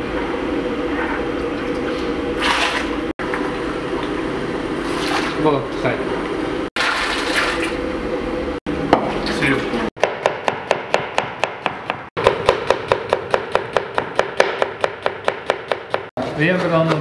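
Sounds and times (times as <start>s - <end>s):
knife chopping on cutting board: 10.0s - 16.1s.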